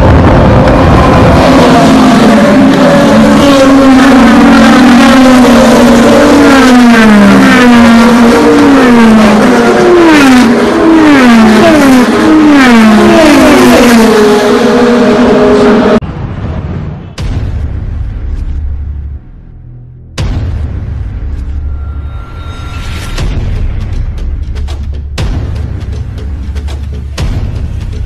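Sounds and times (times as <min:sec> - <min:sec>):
race cars passing at full throttle: 0:00.0 - 0:16.0.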